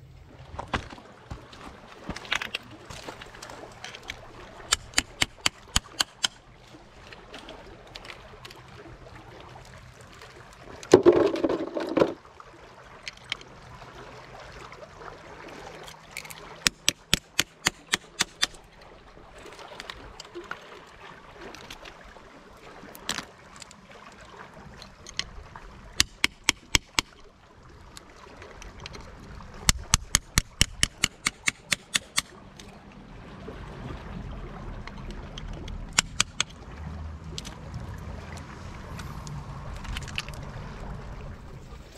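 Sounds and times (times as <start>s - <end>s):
hammer tapping oyster shells: 4.7s - 6.4s, 16.7s - 18.6s, 26.0s - 27.1s, 29.7s - 32.3s, 36.0s - 36.5s.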